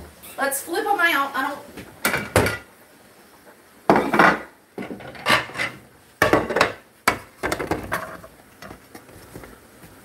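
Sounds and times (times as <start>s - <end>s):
pan scraping over a platter: 4.0s - 5.9s.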